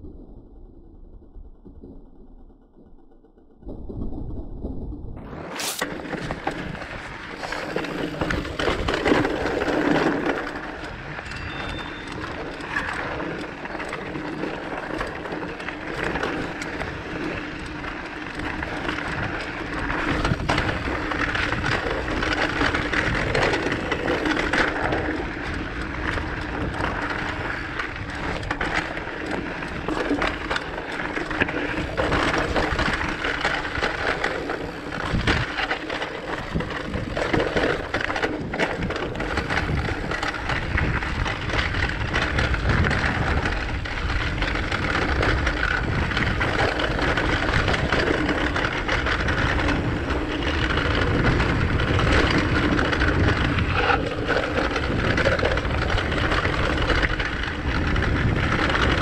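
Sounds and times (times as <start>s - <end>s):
bike tyres rolling on gravel: 5.2s - 59.0s
bike knocks and rattles: 5.6s - 59.0s.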